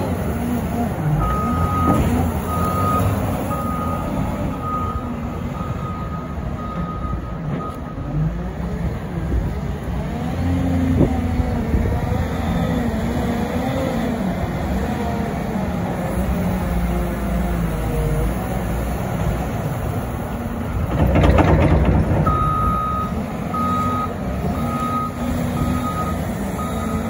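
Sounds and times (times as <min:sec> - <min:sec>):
diesel engine revving: 0:00.0 - 0:07.2, 0:08.0 - 0:27.0
backup alarm beeping: 0:22.2 - 0:27.0.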